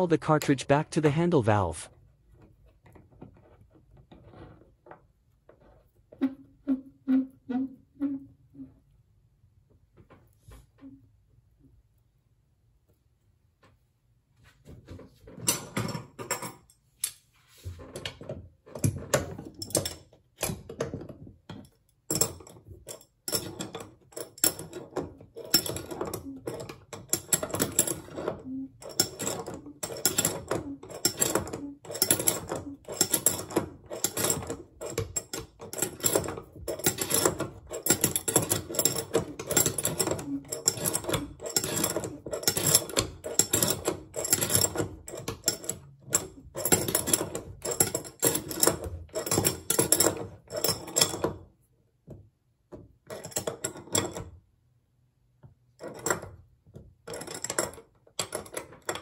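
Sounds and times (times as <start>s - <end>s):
wrenches clicking on metal: 21.6s - 51.4s, 57.0s - 59.0s.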